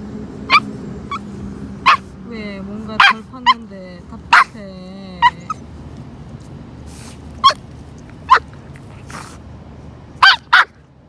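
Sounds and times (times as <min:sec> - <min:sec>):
puppy whining: 0:00.5 - 0:01.3, 0:04.3 - 0:05.7, 0:07.0 - 0:09.4
puppy sniffing: 0:02.8 - 0:09.8.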